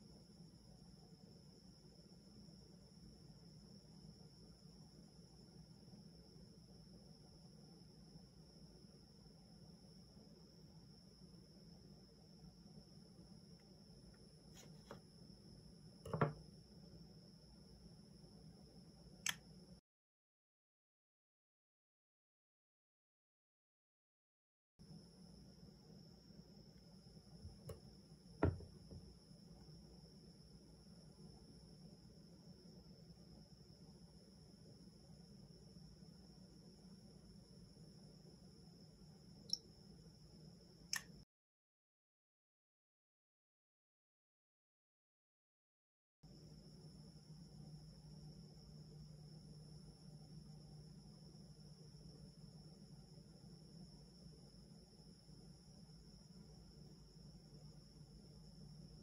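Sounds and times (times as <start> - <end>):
smartphone handling knock: 16.1 - 16.4, 28.4 - 29.0
sharp click: 19.2 - 19.4, 40.9 - 41.2.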